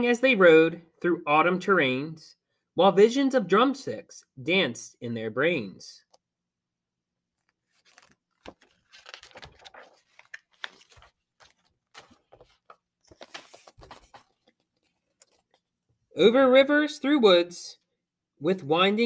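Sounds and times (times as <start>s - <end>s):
book pages rustling: 7.4s - 16.0s.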